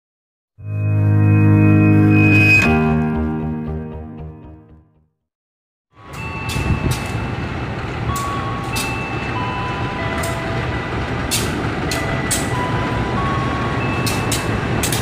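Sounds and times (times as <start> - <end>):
locomotive engine rumble: 6.0 - 15.0.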